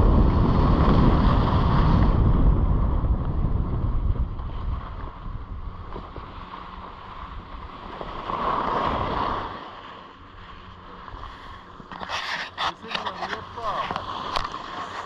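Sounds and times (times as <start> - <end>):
wind buffeting microphone: 0.0 - 15.0
skis sliding over snow: 11.2 - 15.0.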